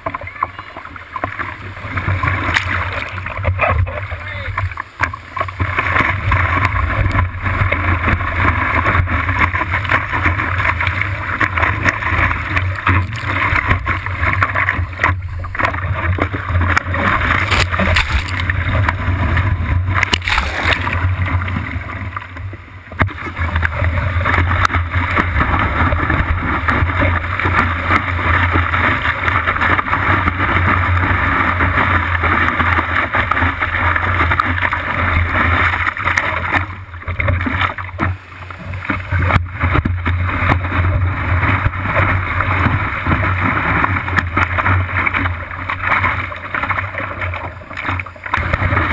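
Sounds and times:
surf rushing and splashing: 0.0s - 48.9s
steady low rumble: 0.6s - 43.5s.

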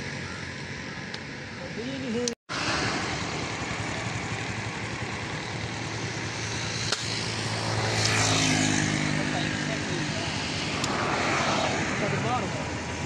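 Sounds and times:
vehicle engine drone: 0.0s - 13.0s
sharp click: 10.8s - 11.0s.

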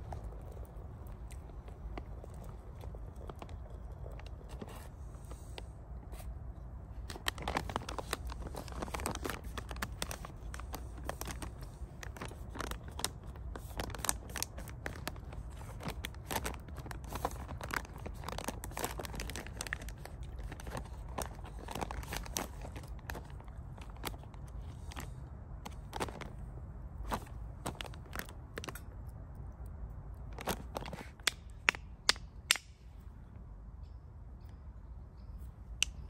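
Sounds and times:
foil pouch crinkling: 7.0s - 26.4s, 27.0s - 28.8s.

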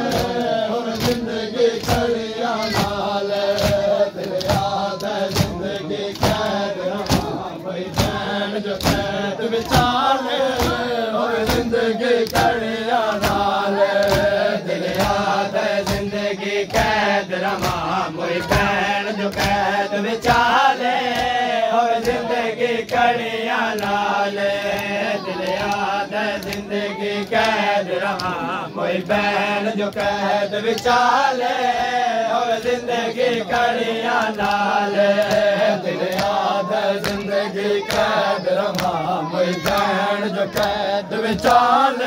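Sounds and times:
hand slaps on chest: 0.0s - 16.1s, 16.7s - 21.4s, 22.0s - 23.0s, 35.2s - 36.4s, 38.7s - 39.9s
men chanting together: 0.0s - 42.0s.

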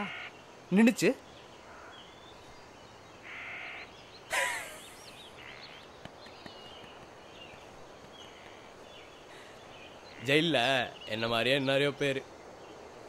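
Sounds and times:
small birds chirping: 0.0s - 13.0s
crow cawing: 1.6s - 2.0s, 3.2s - 3.9s.

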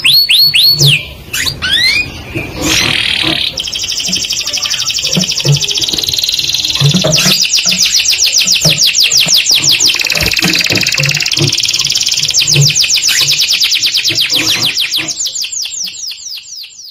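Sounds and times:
canaries singing trills: 0.0s - 16.9s.

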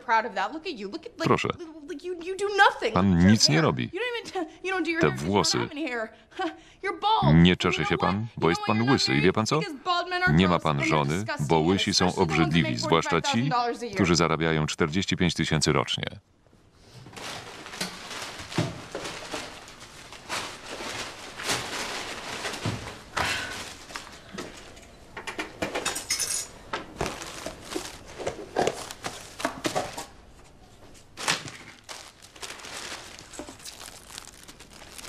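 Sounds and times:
rustling of small objects: 17.1s - 24.8s, 26.9s - 30.2s, 30.8s - 35.0s.

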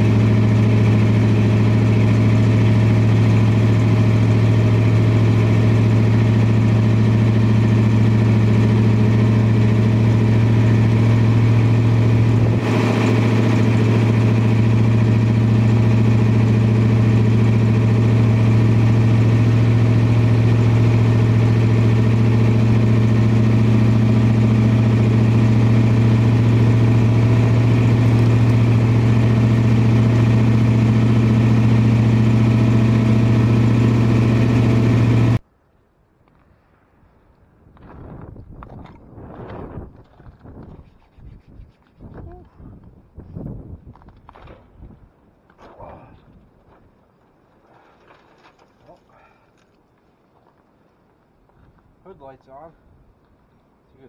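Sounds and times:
car engine idling: 0.0s - 35.4s.

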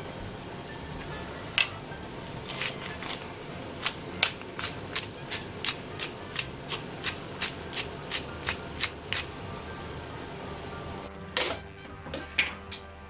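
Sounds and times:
broth boiling hiss: 0.0s - 11.1s
pepper grinder clicking: 2.4s - 9.4s.

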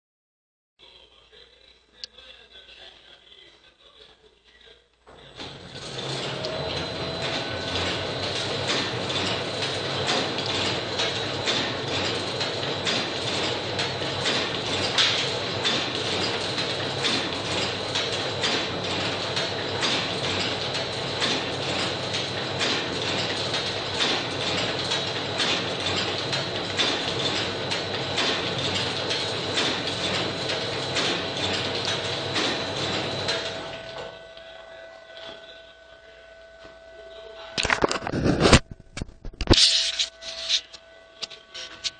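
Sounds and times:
sewing machine rhythmic clatter: 5.2s - 34.1s
thin steady whine: 33.6s - 41.9s.

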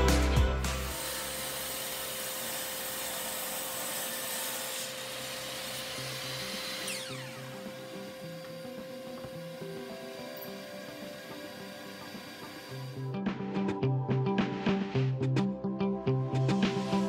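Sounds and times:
mitre saw cutting wood: 0.1s - 13.0s.

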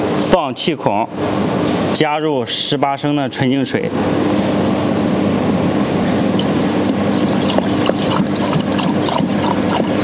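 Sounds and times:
water pouring into funnel: 6.3s - 10.0s.

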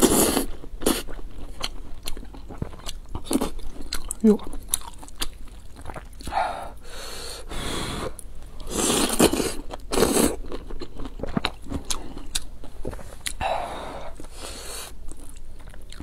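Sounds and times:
wet chewing and smacking: 0.8s - 6.4s, 9.1s - 13.4s, 15.0s - 16.0s.

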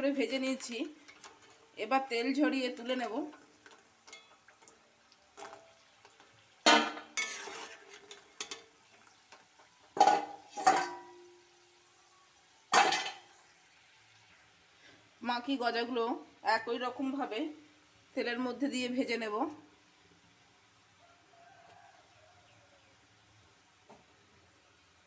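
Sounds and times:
oil sizzling: 0.0s - 25.0s
metal spoon clanking against metal pan: 4.0s - 4.4s, 6.7s - 8.7s, 10.0s - 11.3s.

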